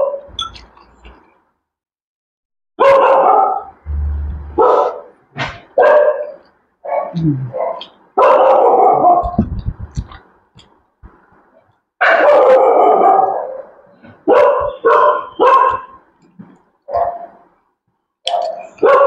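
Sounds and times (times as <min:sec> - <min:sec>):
dog barking loudly: 0:02.8 - 0:03.8, 0:04.5 - 0:09.4, 0:12.0 - 0:16.0, 0:16.9 - 0:17.4, 0:18.3 - 0:19.0.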